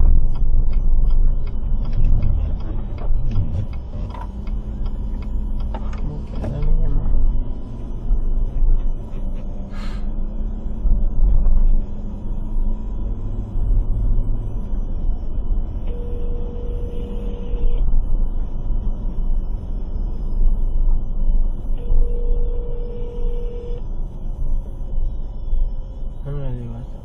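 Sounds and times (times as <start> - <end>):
car driving rumble: 0.0 - 17.8.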